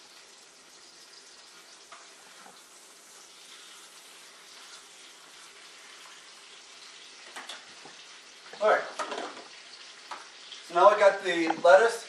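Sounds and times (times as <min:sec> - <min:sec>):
bacon sizzling: 0:00.0 - 0:12.0.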